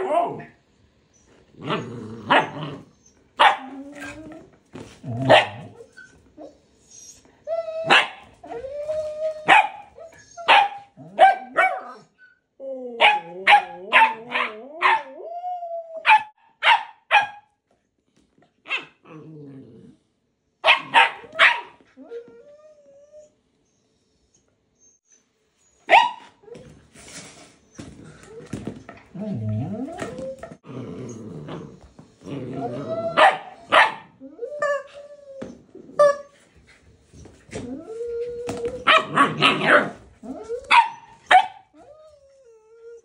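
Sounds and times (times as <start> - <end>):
dog whining and grumbling: 0.0 - 16.1, 27.7 - 36.4, 37.1 - 43.0
dogs barking and yipping: 2.3 - 4.2, 5.2 - 6.2, 7.8 - 8.6, 9.4 - 12.1, 13.0 - 15.2, 20.6 - 21.8, 25.8 - 26.5, 33.0 - 35.0, 38.7 - 41.8.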